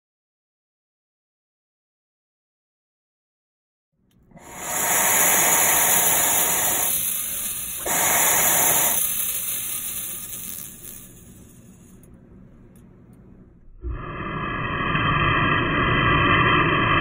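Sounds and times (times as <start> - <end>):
hiss of vapour drawn through cap: 4.4 - 12.1.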